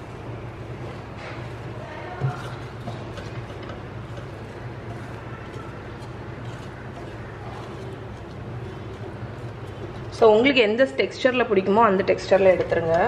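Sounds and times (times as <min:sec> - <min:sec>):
spatula scraping eggs in pan: 0:02.2 - 0:10.2.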